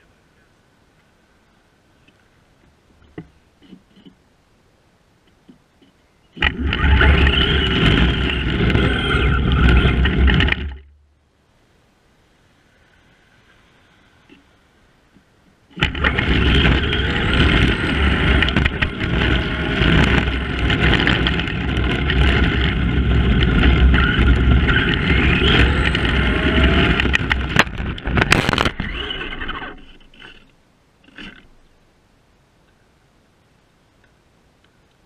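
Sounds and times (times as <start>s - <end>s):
toy car crashing: 6.4s - 10.8s, 15.8s - 30.5s
rc car motor whine: 6.4s - 10.9s, 15.7s - 31.5s
tyre rumble and rattling: 6.4s - 11.0s, 15.8s - 31.6s.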